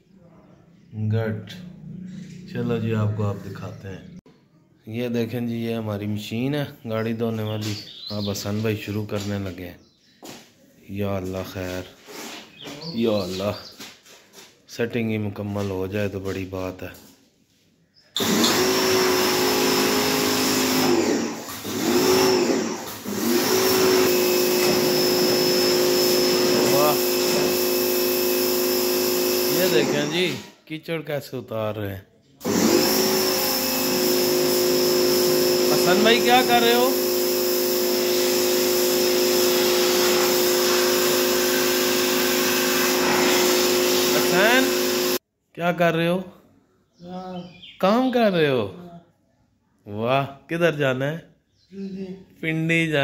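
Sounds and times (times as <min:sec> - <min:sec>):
pressure washer motor hum: 0:18.2 - 0:30.5, 0:32.4 - 0:45.2.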